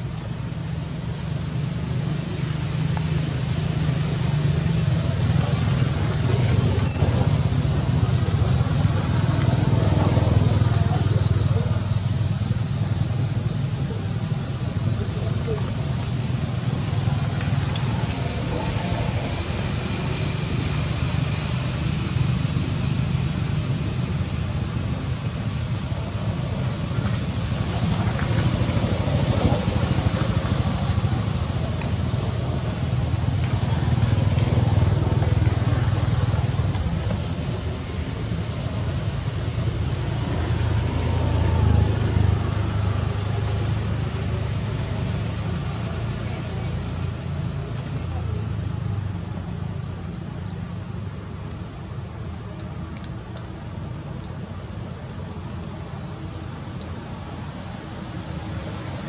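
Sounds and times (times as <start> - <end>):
faint high ticks: 52.4 - 57.0.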